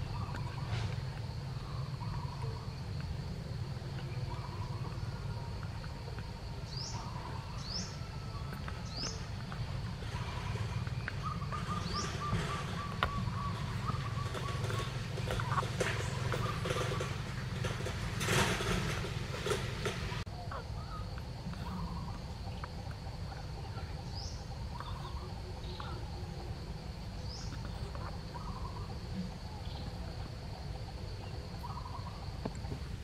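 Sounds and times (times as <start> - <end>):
bird chirps and calls: 6.6 - 17.7, 23.3 - 26.5, 27.2 - 30.0, 31.2 - 32.2.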